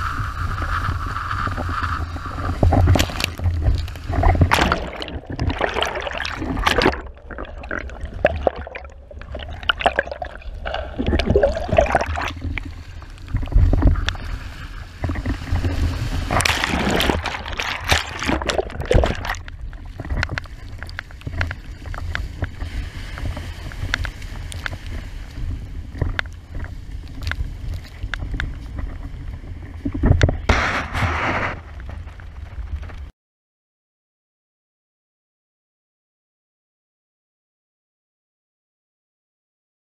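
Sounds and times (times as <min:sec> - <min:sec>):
wind rumble on microphone: 0:00.0 - 0:33.1
water splashing against board: 0:01.5 - 0:25.1.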